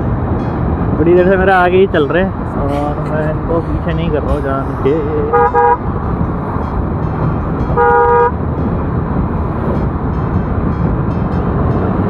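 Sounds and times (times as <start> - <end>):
motorcycle engine: 0.0 - 12.0
vehicle horn honking: 5.2 - 5.9, 7.6 - 8.4
wind noise from riding: 5.3 - 12.0.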